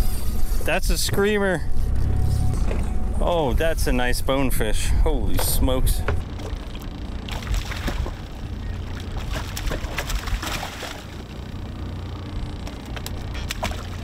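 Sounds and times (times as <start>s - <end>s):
low steady rumble: 0.0s - 14.0s
water sloshing and splashing: 5.4s - 11.4s, 12.8s - 14.0s.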